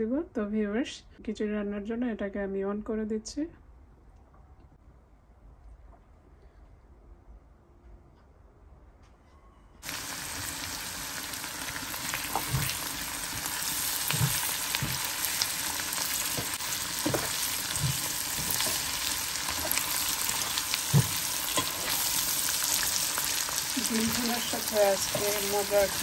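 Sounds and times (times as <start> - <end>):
potatoes sizzling in oil: 9.8 - 26.0.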